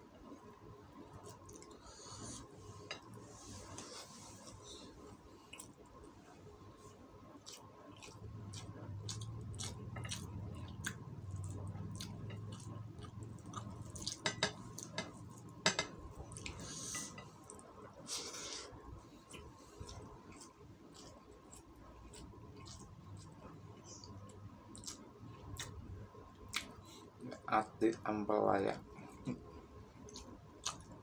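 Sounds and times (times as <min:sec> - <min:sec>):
chewing and wet mouth clicks: 0:07.4 - 0:15.0, 0:19.3 - 0:23.4, 0:24.0 - 0:25.8, 0:26.4 - 0:26.8, 0:30.0 - 0:31.0.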